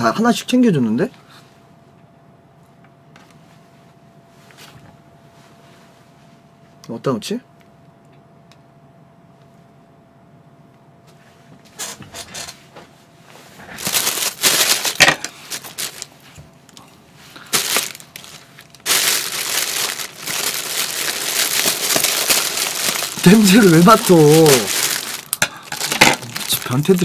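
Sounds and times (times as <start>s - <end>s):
plastic bag rustling: 13.4s - 16.4s, 17.2s - 27.0s.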